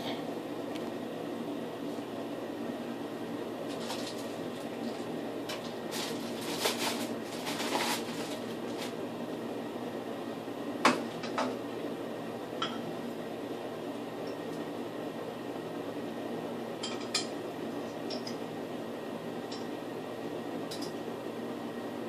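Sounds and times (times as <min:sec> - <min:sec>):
steady background hum: 0:00.0 - 0:22.0
objects clicking and rustling: 0:03.7 - 0:08.9.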